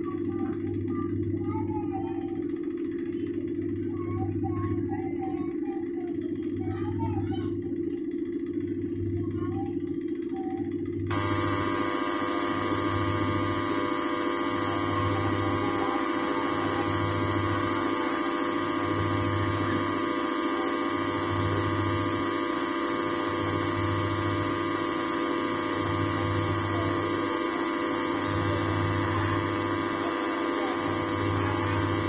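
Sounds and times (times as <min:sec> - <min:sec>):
washing machine motor humming: 0:00.0 - 0:32.0
pulsing low hum: 0:08.5 - 0:32.0.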